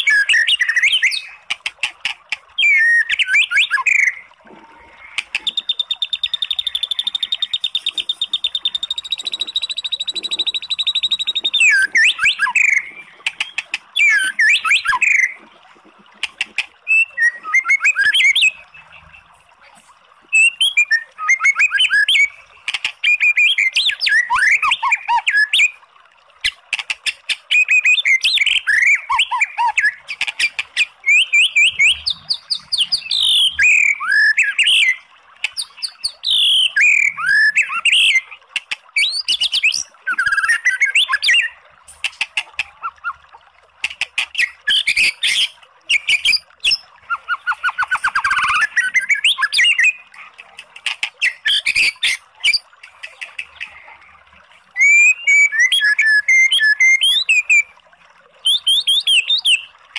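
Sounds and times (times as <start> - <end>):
songbird whistling and trilling: 0.0 - 1.4, 2.6 - 4.3, 5.4 - 15.3, 16.9 - 18.6, 20.3 - 22.4, 27.5 - 30.0, 30.8 - 35.0, 35.6 - 38.3, 39.0 - 41.6, 44.4 - 50.0, 54.8 - 57.7.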